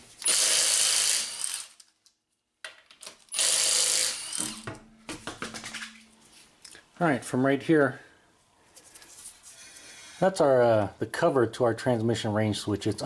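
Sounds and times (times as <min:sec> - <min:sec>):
impact wrench hammering: 0:03.4 - 0:06.2.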